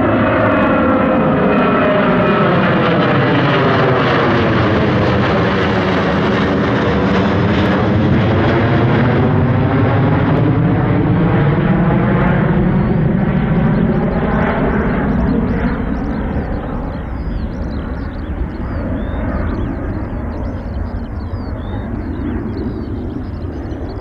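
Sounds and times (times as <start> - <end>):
jet airliner passing overhead: 0.0 - 24.0.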